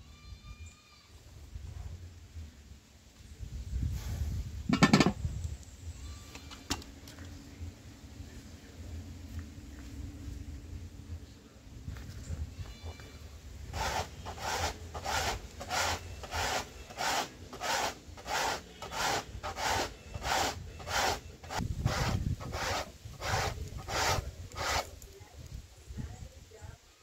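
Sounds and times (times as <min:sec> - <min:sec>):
corn rasping on grater: 0:13.7 - 0:25.1.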